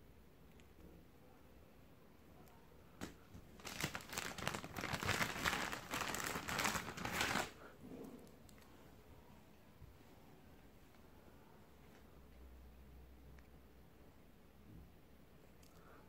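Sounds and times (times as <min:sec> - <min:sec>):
plastic bag crinkling: 0:03.0 - 0:07.6.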